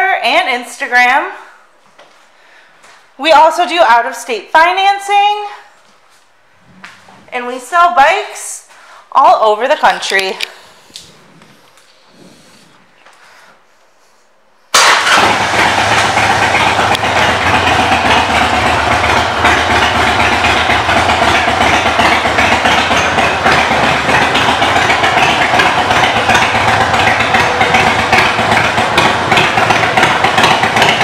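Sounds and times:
motorcycle engine running steadily: 0:15.0 - 0:31.0.

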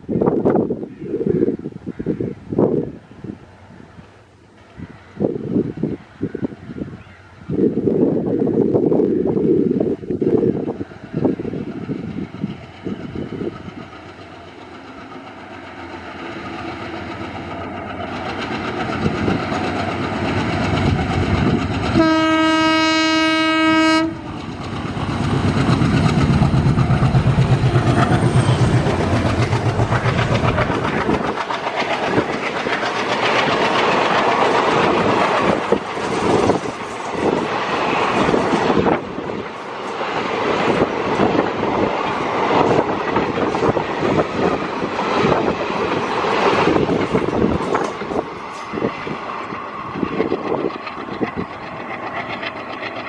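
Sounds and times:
diesel locomotive rumbling: 0:00.0 - 0:53.0
train wheels clickety-clack: 0:09.9 - 0:53.0
train horn blast: 0:21.9 - 0:24.4.

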